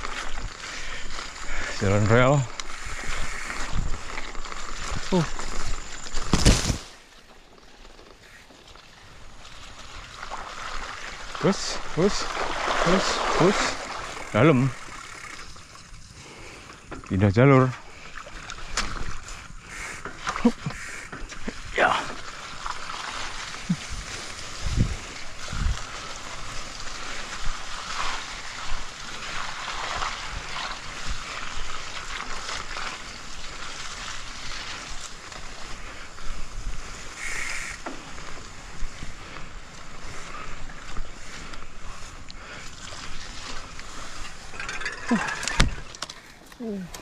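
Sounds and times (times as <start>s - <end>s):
bike tyres through grass and mud: 0.0s - 47.0s
wind on microphone: 2.7s - 5.8s, 23.6s - 28.2s.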